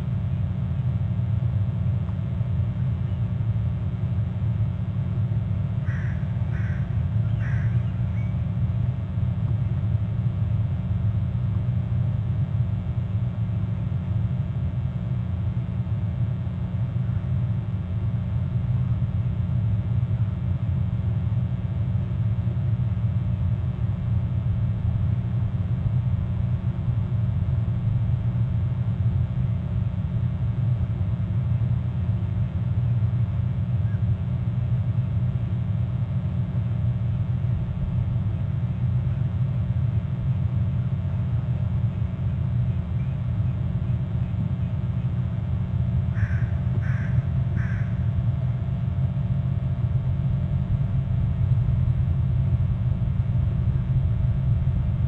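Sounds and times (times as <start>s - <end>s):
crow cawing: 5.8s - 8.3s, 46.1s - 48.2s.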